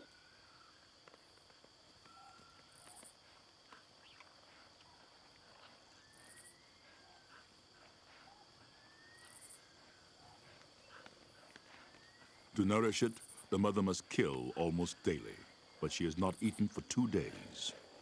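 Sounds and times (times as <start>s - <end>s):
high insect drone: 0.0s - 18.0s
high-pitched insect trills: 0.0s - 18.0s
thin whistled calls: 2.0s - 3.0s, 5.8s - 7.3s, 8.2s - 11.0s, 11.7s - 12.6s.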